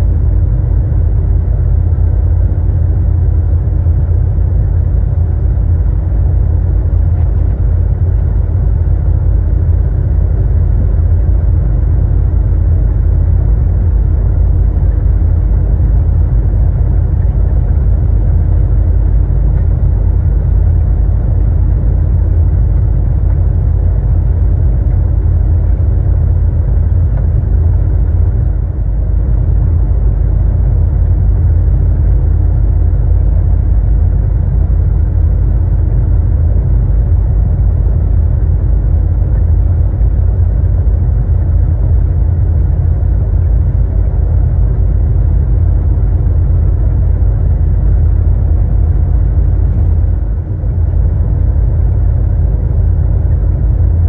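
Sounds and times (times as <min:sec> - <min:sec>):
truck engine drone: 0:00.0 - 0:54.0.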